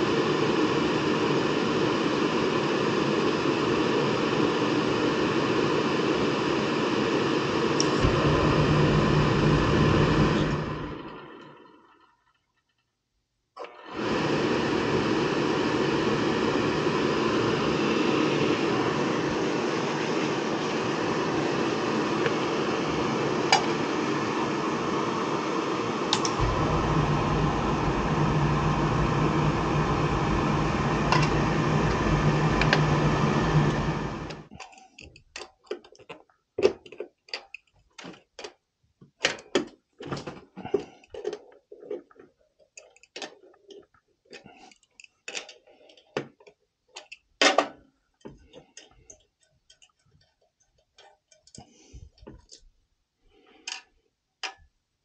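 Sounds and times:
deep rumble of burner flame: 0:00.0 - 0:12.0, 0:13.9 - 0:34.5
oil burner mechanical whir: 0:00.0 - 0:12.4, 0:13.6 - 0:34.6.

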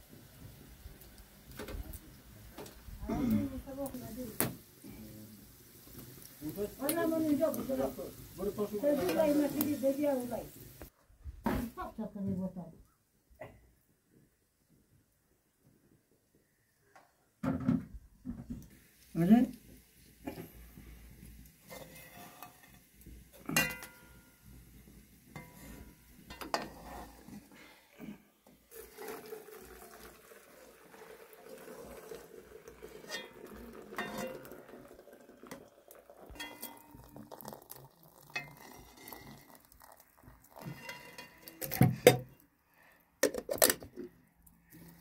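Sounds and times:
dishes and pots clinking: 0:23.4 - 0:24.5, 0:25.3 - 0:27.1, 0:33.0 - 0:34.7, 0:36.3 - 0:37.2, 0:38.2 - 0:39.6, 0:40.6 - 0:42.4.

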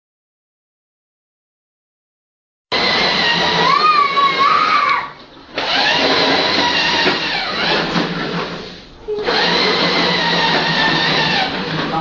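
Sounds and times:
small electric motor whining: 0:02.7 - 0:04.9, 0:05.6 - 0:08.4, 0:09.1 - 0:12.0.

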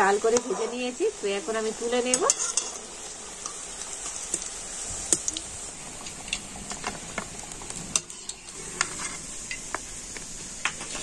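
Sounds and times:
hot oil sizzling in a pan: 0:00.0 - 0:11.0
metal spoon tapping a pan: 0:02.0 - 0:02.8.

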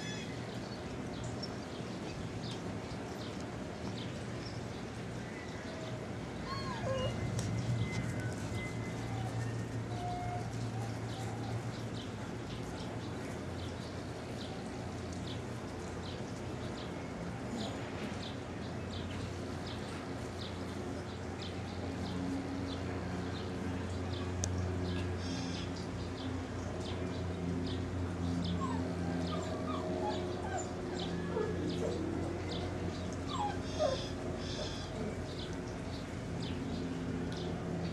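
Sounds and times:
puppies whimpering and squeaking: 0:06.5 - 0:11.3, 0:28.5 - 0:35.1.

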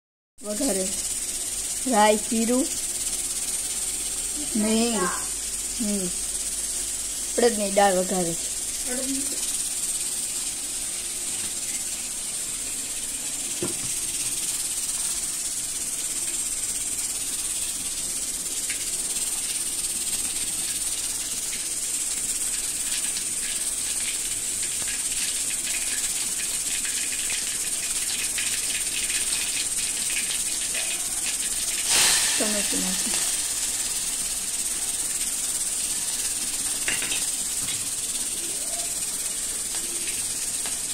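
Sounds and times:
seeds sizzling in hot oil: 0:00.4 - 0:40.9
seeds crackling and popping: 0:24.6 - 0:40.9.

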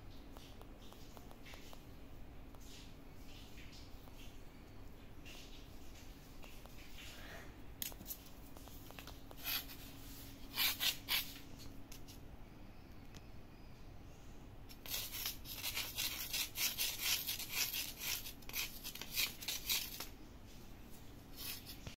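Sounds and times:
kitten claws scratching on concrete: 0:07.8 - 0:12.2, 0:14.7 - 0:20.1, 0:21.3 - 0:21.9.

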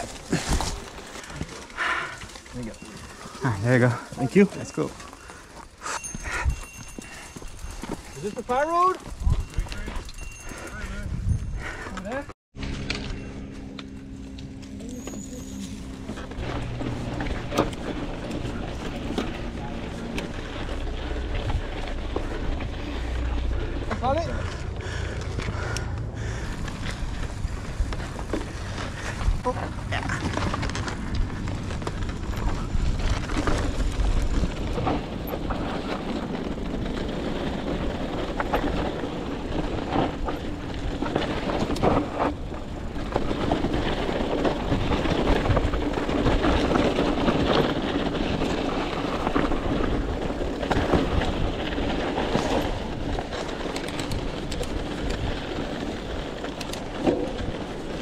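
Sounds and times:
tyres rumbling on dirt: 0:00.0 - 0:05.6, 0:14.5 - 0:58.0
bike rattling and clicking: 0:00.0 - 0:58.0
wind on microphone: 0:09.1 - 0:11.8.

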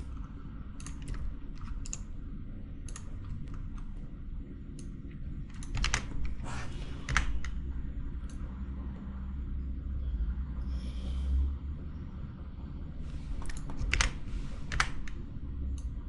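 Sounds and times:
computer mouse and keyboard clicks: 0:00.0 - 0:02.1, 0:02.8 - 0:03.9, 0:04.8 - 0:07.6, 0:13.3 - 0:16.0
low steady hum: 0:00.0 - 0:16.0.

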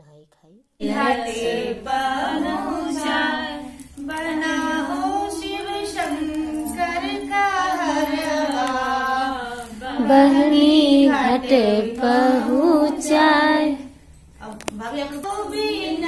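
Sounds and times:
woman singing unaccompanied: 0:00.8 - 0:16.0.

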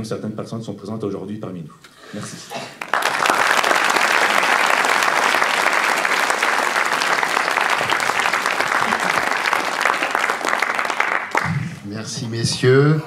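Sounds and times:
audience applauding: 0:02.8 - 0:11.8.

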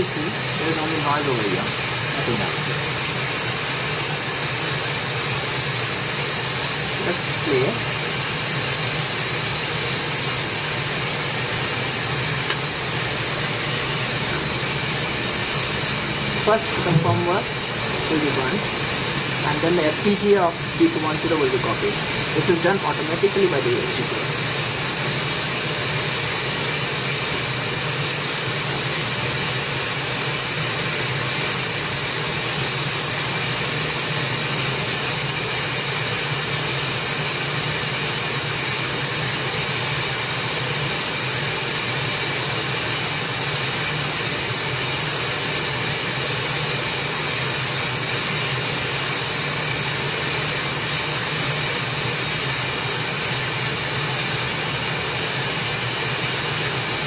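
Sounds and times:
radio static hiss: 0:00.0 - 0:31.2.

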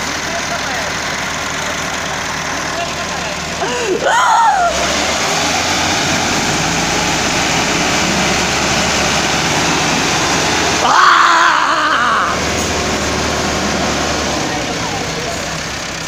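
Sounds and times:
tractor engines under heavy load: 0:00.0 - 0:16.0
loud shout: 0:03.6 - 0:04.9, 0:10.8 - 0:12.5.

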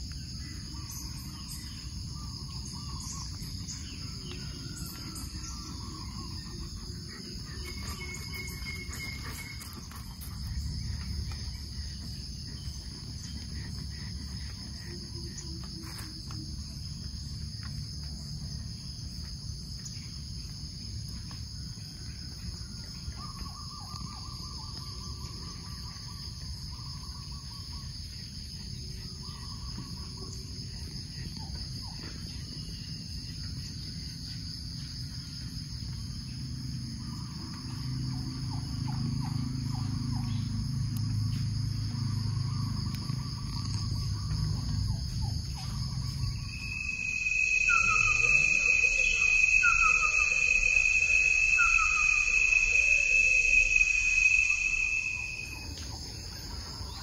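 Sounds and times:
insects chirping: 0:00.0 - 0:57.0
animal calls: 0:00.5 - 0:16.7, 0:41.8 - 0:57.0.

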